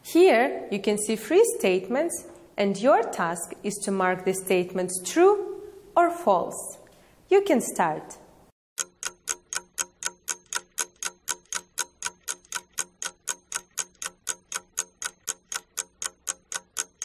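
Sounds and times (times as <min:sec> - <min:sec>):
clock ticking: 0:08.8 - 0:17.0.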